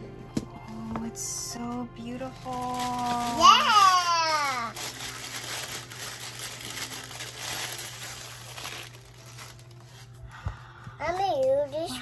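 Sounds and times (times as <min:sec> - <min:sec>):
paper wrapping crinkling: 0:01.5 - 0:10.3.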